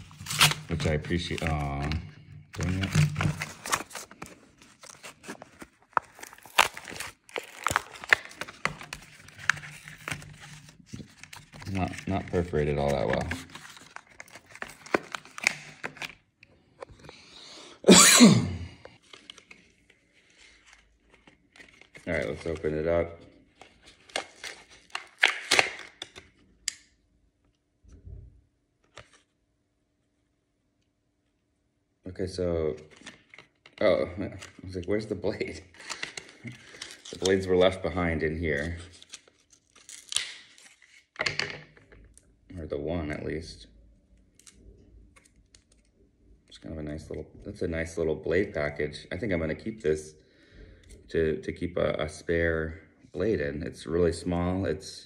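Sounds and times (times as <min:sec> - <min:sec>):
packaging being torn open: 0:00.0 - 0:02.0, 0:02.6 - 0:16.2, 0:23.6 - 0:26.3, 0:38.6 - 0:41.0.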